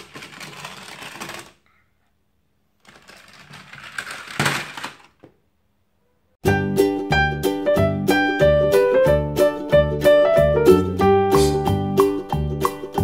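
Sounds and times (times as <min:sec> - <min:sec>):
toy car wheels rattling on track: 0:00.0 - 0:01.6, 0:02.8 - 0:05.2
music: 0:06.4 - 0:13.0.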